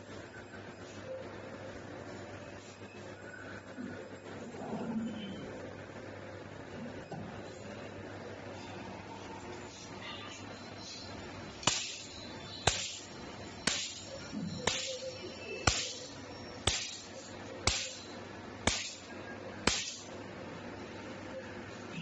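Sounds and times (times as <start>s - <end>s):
laser pulse snaps: 11.6s - 14.1s, 15.6s - 18.0s.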